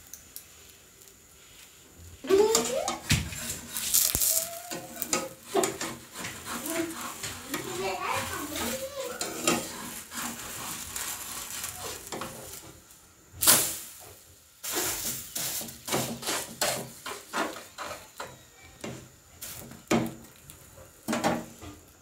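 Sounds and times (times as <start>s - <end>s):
crepe sizzling in a wok: 0.0s - 22.0s
spatula scraping a pan: 2.2s - 12.8s, 14.6s - 20.3s.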